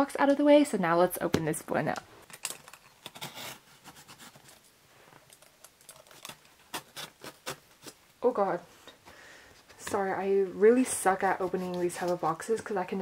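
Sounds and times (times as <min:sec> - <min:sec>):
knife scraping cardboard tape: 0:03.0 - 0:04.6, 0:06.0 - 0:08.0.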